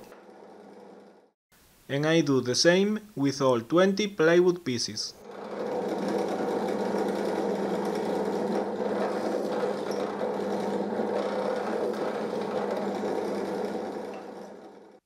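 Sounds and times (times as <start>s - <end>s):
drill press motor hum: 0.0s - 1.3s, 5.2s - 15.0s
drill bit boring into plywood: 5.2s - 15.0s.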